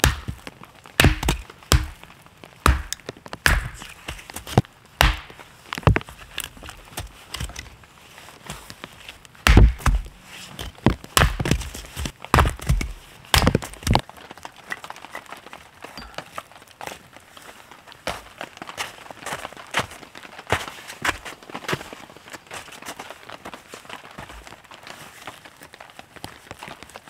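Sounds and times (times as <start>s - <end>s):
hatchet chopping wood: 0.0s - 0.4s, 1.0s - 2.0s, 2.6s - 6.0s, 9.4s - 10.1s, 10.8s - 11.7s, 12.3s - 14.0s.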